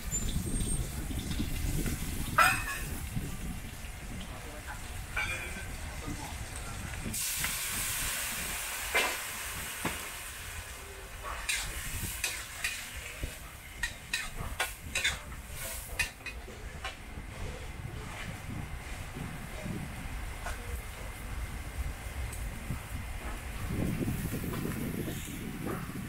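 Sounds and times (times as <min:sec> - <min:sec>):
food sizzling in a wok: 0:04.7 - 0:16.4
metal spatula scraping a wok: 0:11.3 - 0:13.0.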